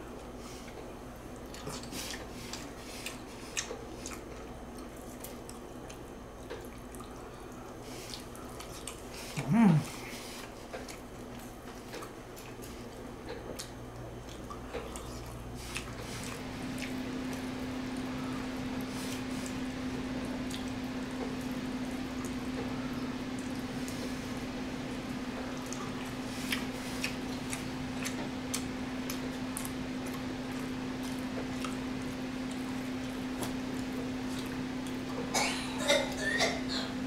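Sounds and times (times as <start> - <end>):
wet chewing and mouth-smacking: 0.2 - 9.5, 10.3 - 18.1, 18.8 - 22.7, 25.2 - 35.3
short vocal sound: 9.4 - 10.0.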